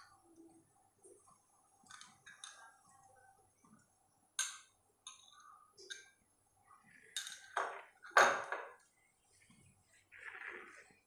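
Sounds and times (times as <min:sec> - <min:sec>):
metal spoon clinking on glass bowl: 0:07.2 - 0:07.6.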